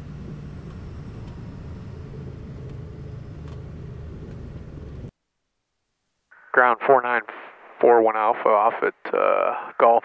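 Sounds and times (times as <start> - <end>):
piston aircraft engines droning: 0.0 - 5.1.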